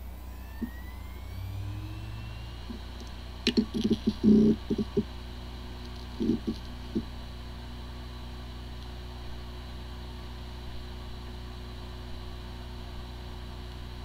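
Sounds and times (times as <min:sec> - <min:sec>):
hard drive spinning hum: 0:00.0 - 0:14.0.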